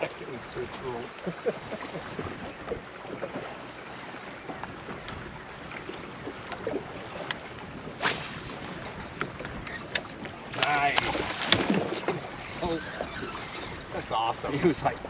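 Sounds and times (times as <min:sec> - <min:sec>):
waves lapping against boat hull: 0:00.0 - 0:15.0
wind on microphone: 0:00.0 - 0:15.0
small splashes and clicks: 0:09.2 - 0:12.1.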